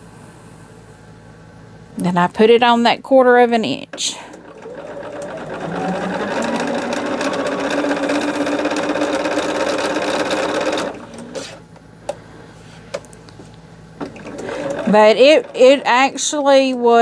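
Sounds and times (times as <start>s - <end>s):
sewing machine stitching: 4.3s - 11.6s, 14.0s - 16.3s.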